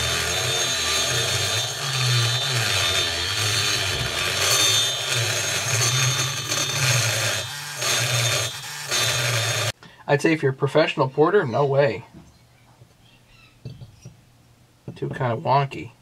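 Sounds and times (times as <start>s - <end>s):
dental handpiece grinding metal: 0.0s - 9.7s.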